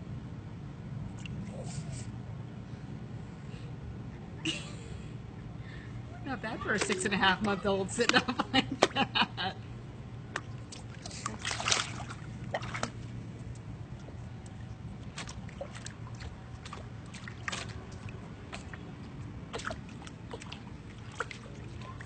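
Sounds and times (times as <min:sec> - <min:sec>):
water splashing: 0:10.3 - 0:13.2, 0:13.9 - 0:22.0.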